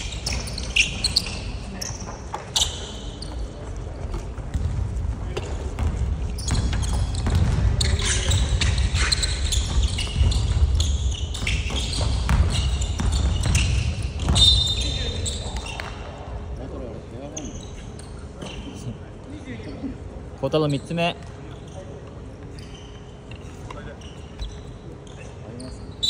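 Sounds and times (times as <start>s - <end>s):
sneakers squeaking: 0.0s - 19.1s, 20.6s - 26.0s
basketball bouncing: 4.1s - 14.6s.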